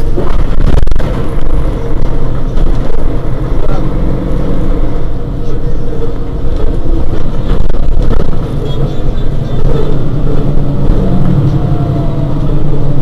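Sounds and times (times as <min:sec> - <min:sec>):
bus diesel engine idling: 0:00.0 - 0:13.0.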